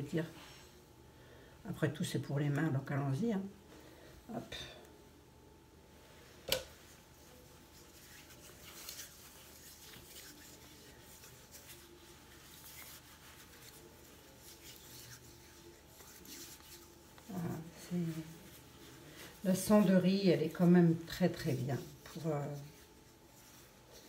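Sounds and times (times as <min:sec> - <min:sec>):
hands rubbing skin on skin: 0:06.7 - 0:24.0.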